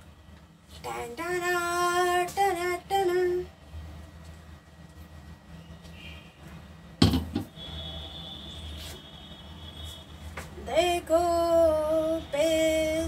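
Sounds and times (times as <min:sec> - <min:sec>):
low steady hum: 0:00.0 - 0:13.0
metal jar clunk: 0:07.0 - 0:07.5.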